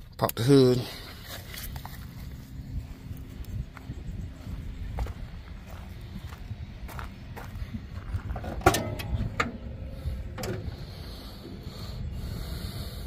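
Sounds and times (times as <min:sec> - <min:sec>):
car hood metal clicks and clanks: 0:08.4 - 0:10.8.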